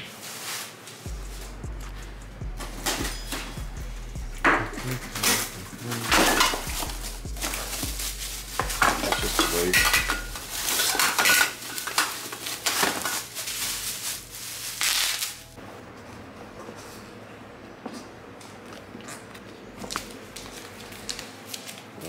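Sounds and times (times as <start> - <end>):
bubble wrap rustling: 0.0 - 1.6, 4.8 - 15.6, 19.9 - 22.0.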